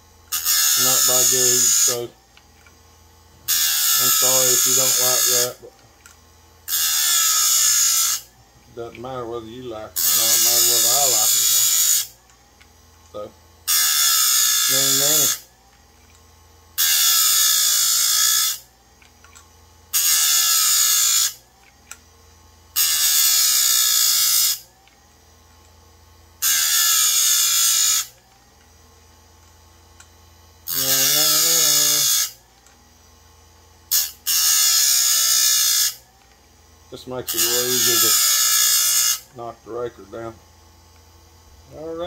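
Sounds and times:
motor low hum: 0:00.0 - 0:35.4
grinding wheel on steel: 0:00.3 - 0:02.2, 0:03.4 - 0:16.2, 0:16.8 - 0:22.0, 0:22.7 - 0:25.8, 0:26.4 - 0:28.8, 0:30.6 - 0:32.7, 0:33.9 - 0:36.1, 0:36.9 - 0:40.1.

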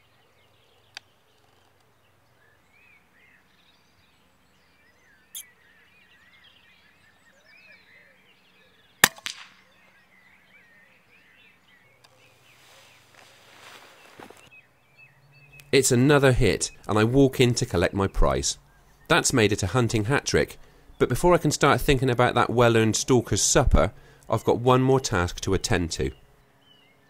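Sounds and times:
birds singing faintly: 0:00.0 - 0:27.0
air rifle shot crack: 0:09.0 - 0:09.7.

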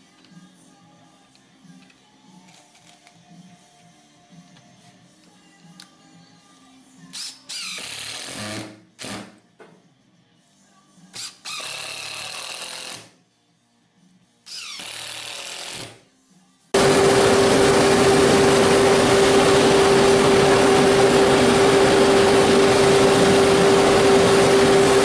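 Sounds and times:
impact driver driving screws: 0:14.5 - 0:16.0.

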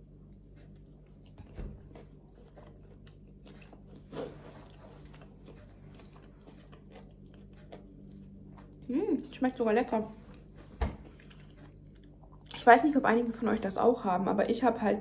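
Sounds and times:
person chewing bread: 0:00.0 - 0:09.0, 0:10.2 - 0:12.6.

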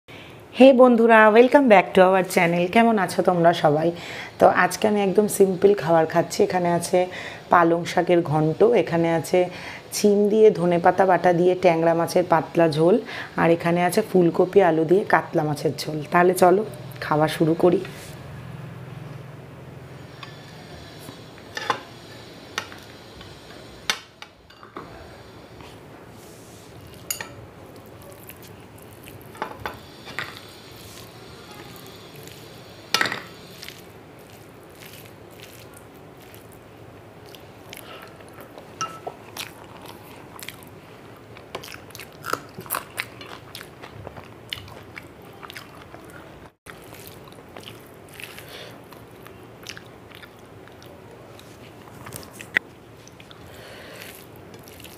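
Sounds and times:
hand squishing food: 0:26.8 - 0:29.4, 0:33.6 - 0:38.2, 0:46.7 - 0:51.6, 0:52.2 - 0:54.9.

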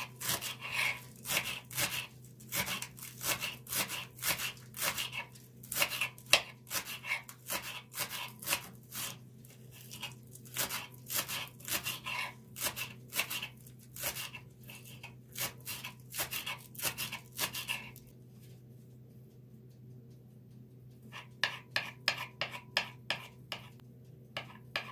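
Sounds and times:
knife slicing on wooden board: 0:00.0 - 0:18.0.

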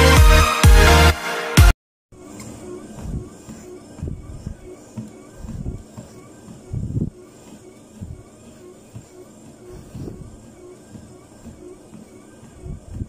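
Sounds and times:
treadmill running: 0:02.2 - 0:13.0
footsteps thudding on treadmill belt: 0:02.9 - 0:13.0.

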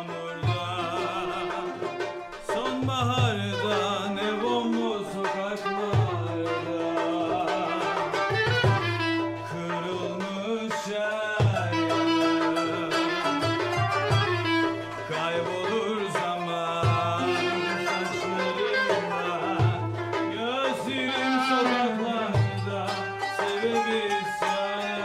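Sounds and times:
kanun: 0:00.0 - 0:10.7, 0:11.3 - 0:25.0
darbuka drum beat: 0:00.0 - 0:25.0
clarinet melody: 0:05.6 - 0:10.1, 0:11.6 - 0:15.2, 0:17.1 - 0:20.3.

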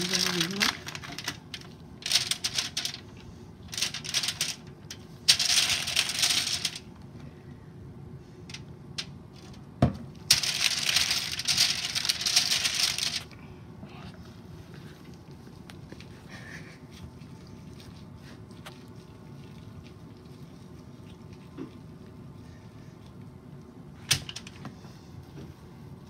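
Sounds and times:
aluminium foil crinkling: 0:00.0 - 0:06.9, 0:10.2 - 0:13.4.

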